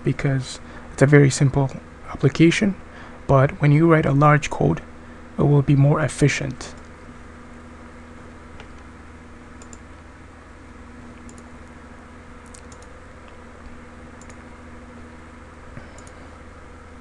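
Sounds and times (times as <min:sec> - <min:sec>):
steady low hum: 0:00.0 - 0:17.0
faint computer clicks: 0:09.6 - 0:09.8, 0:11.2 - 0:11.5, 0:12.4 - 0:13.4, 0:14.2 - 0:14.4, 0:15.9 - 0:16.2.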